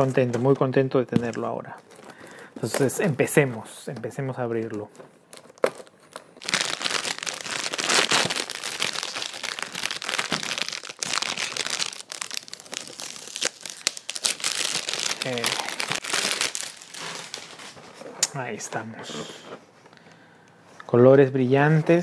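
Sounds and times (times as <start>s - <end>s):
plastic bag crinkling: 4.4s - 17.9s.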